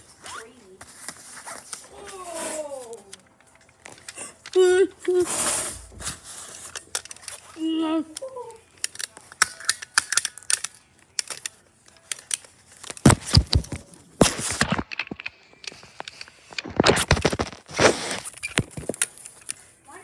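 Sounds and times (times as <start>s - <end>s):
close rustling and scraping: 0.0s - 4.4s, 5.1s - 7.7s, 15.7s - 20.0s.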